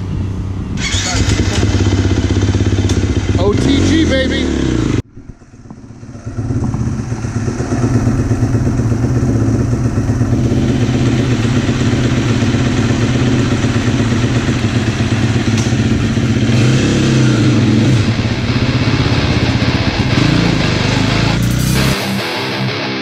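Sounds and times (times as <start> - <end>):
dirt bike engine idling: 0.8 - 21.9.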